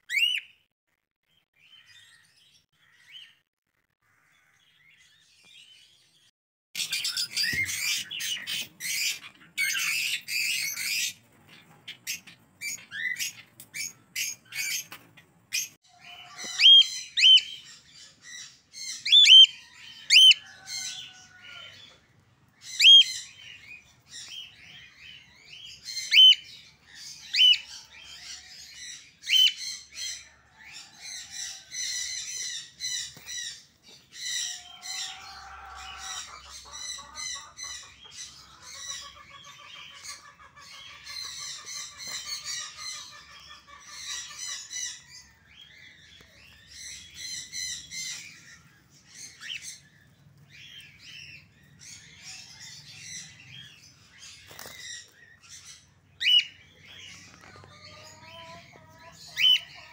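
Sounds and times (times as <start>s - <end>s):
parrots chirping shrilly: 0.1s - 0.6s, 6.8s - 14.9s, 15.5s - 46.0s, 46.7s - 59.9s
dense bird chatter: 1.4s - 59.9s.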